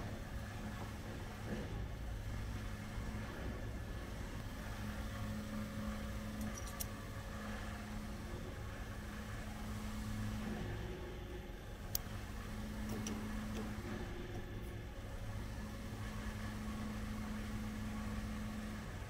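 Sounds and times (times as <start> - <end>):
shop machinery humming: 0.0 - 19.0
tool clicks: 6.4 - 6.9, 12.8 - 13.7.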